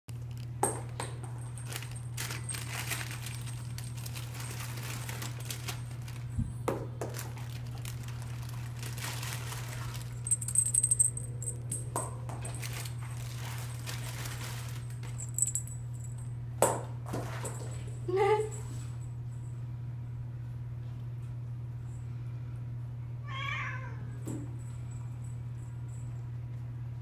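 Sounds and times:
steady low hum: 0.1 - 23.3, 23.9 - 27.0
cat toys jingling: 1.2 - 6.3, 7.4 - 11.9, 12.5 - 16.2.

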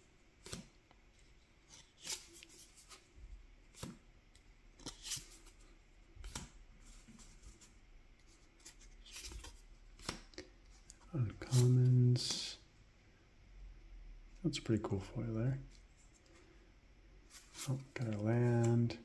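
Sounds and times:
cards flicking and sliding: 8.6 - 10.4, 11.5 - 11.7.

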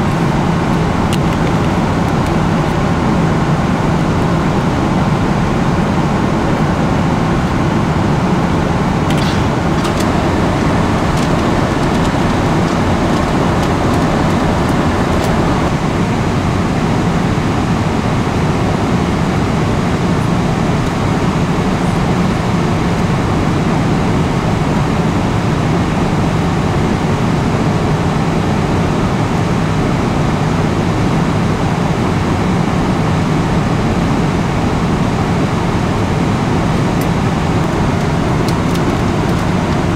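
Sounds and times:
airplane cabin roar: 0.0 - 39.9.

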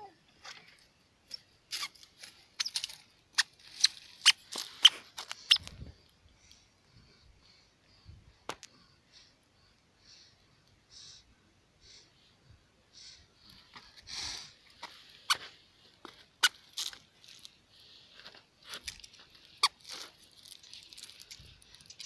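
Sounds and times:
dry leaves crackling underfoot: 1.9 - 5.7, 18.6 - 22.0.

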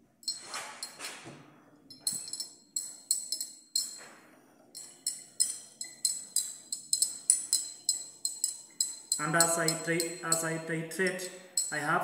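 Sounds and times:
glass flask clinking: 1.9 - 4.0.

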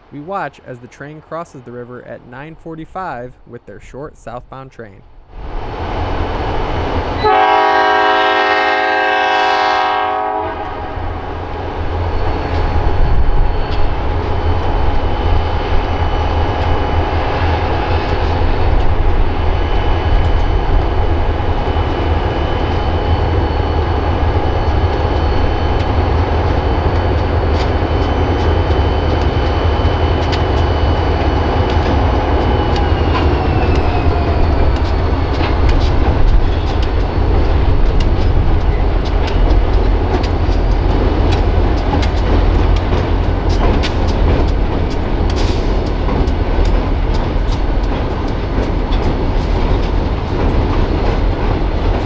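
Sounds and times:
locomotive horn blast: 7.2 - 11.0
diesel engines rumbling: 14.9 - 52.0
train wheels clattering on bridge: 15.2 - 52.0.

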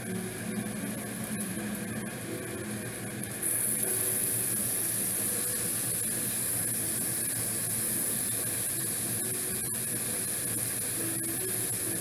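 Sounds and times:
food sizzling on electric grill: 0.0 - 12.0.

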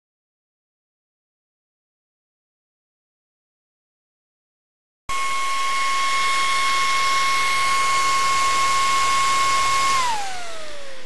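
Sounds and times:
cooling fan whining rush of air: 5.1 - 11.0.

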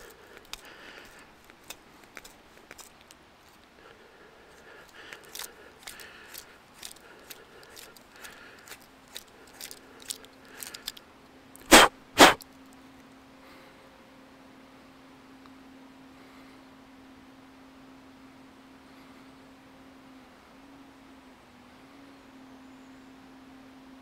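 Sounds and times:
short bursts of noise: 11.6 - 12.4.

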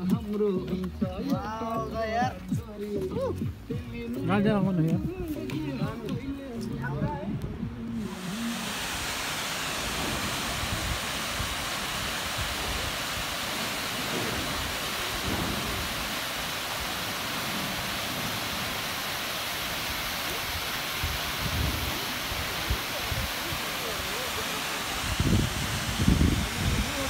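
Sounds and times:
waterfall rushing: 5.5 - 27.0.

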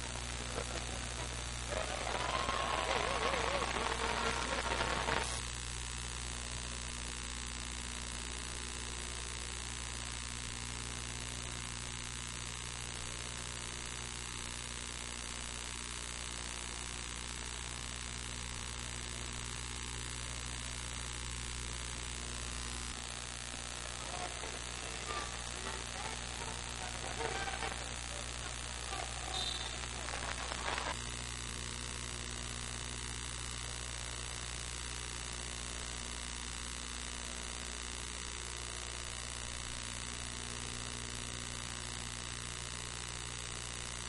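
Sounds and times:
burst of voices: 0.0 - 5.4, 23.5 - 31.0
electrical hum with hiss: 0.0 - 44.0.

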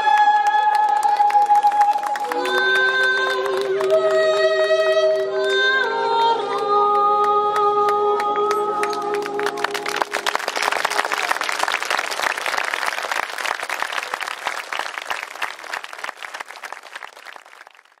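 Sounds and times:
audience applauding: 0.0 - 4.3, 8.4 - 18.0.

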